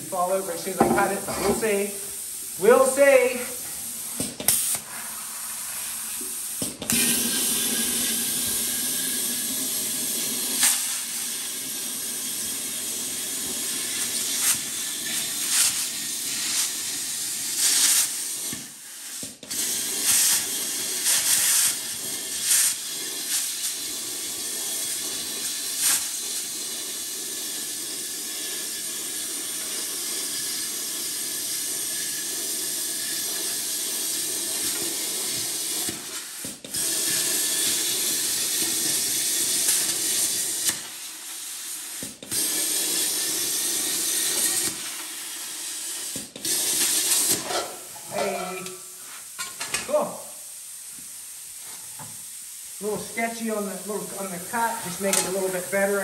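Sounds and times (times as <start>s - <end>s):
pneumatic cutter grinding metal: 6.8s - 11.1s, 12.0s - 30.4s, 31.1s - 41.1s, 41.9s - 45.3s, 46.0s - 48.8s.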